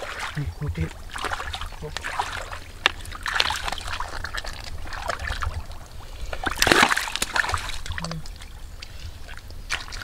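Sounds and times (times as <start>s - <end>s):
hands splashing in muddy water: 6.3s - 8.4s.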